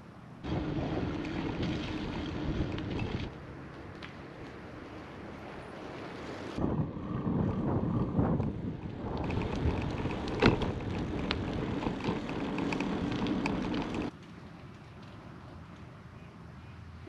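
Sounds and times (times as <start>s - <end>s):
quiet outdoor background: 0.0s - 17.0s
bike clicks and rattles: 1.0s - 4.6s, 7.5s - 16.0s
wind buffeting microphone: 6.5s - 14.1s.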